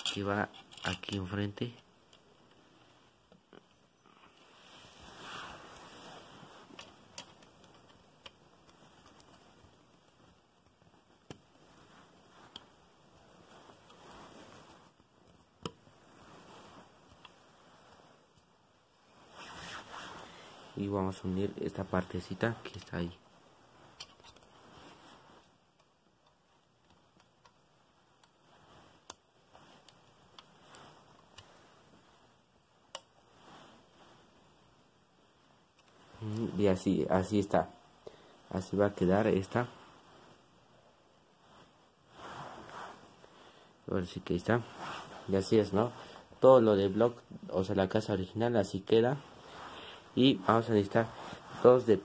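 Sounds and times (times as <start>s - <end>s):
plastic pieces clicking together: 0.0s - 1.2s
faint rustling: 0.0s - 52.0s.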